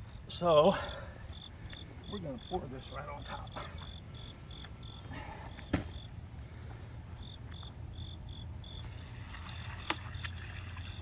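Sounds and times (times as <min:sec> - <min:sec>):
crickets chirping: 0:00.0 - 0:11.0
liquid pouring from bucket: 0:08.8 - 0:11.0.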